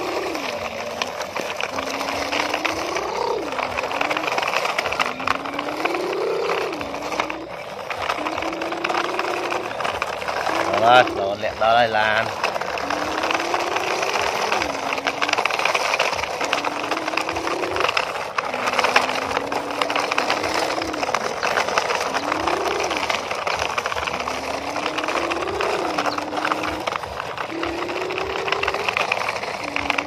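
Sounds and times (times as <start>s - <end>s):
toy truck wheels on gravel: 0.0s - 30.0s.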